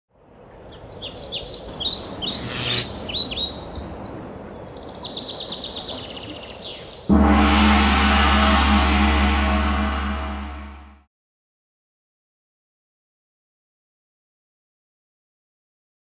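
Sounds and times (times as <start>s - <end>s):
songbirds chirping: 0.6s - 7.1s
gong ringing: 7.1s - 11.0s.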